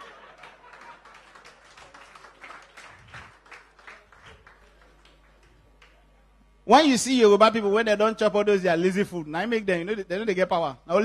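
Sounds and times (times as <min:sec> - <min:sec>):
audience laughter: 0:00.0 - 0:01.6
scattered hand claps: 0:00.0 - 0:06.0.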